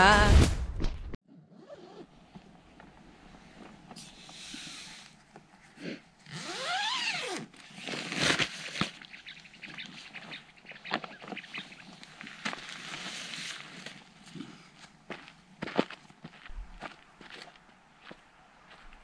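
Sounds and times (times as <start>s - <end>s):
zipper pulled: 1.3s - 2.1s, 6.2s - 9.0s.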